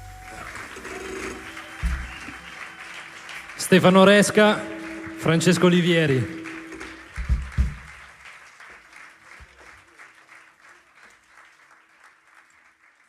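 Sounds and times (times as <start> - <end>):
audience applause: 0.0 - 13.0
low thumps: 4.6 - 8.0.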